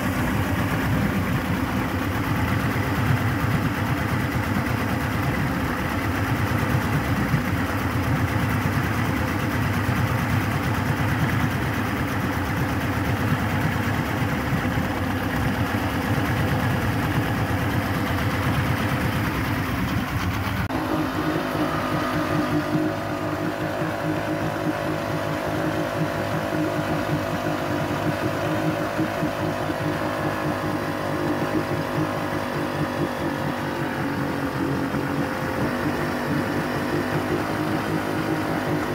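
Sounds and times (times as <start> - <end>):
outboard motor running: 0.0 - 38.9.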